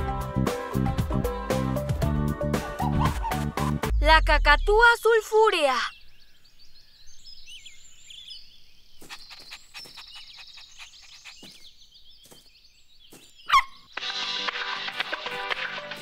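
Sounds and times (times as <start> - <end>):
small birds chirping: 4.5 - 14.1.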